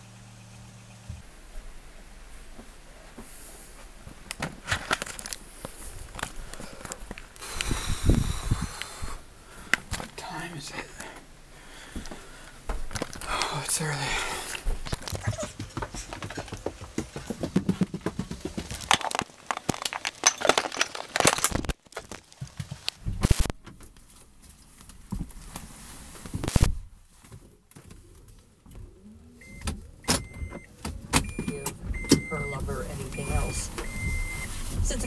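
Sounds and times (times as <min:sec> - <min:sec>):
rustling and knocks: 0:14.7 - 0:26.5
short high dashboard beeps: 0:29.4 - 0:35.0.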